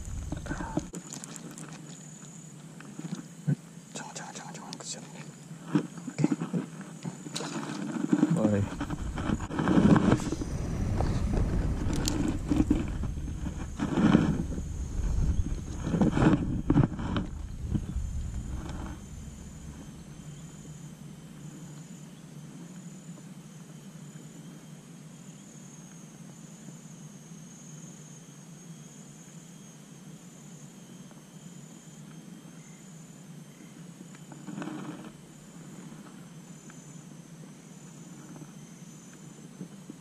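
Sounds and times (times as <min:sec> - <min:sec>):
faint drone: 0:00.0 - 0:02.4, 0:07.0 - 0:24.6
insects chirping: 0:00.0 - 0:39.6.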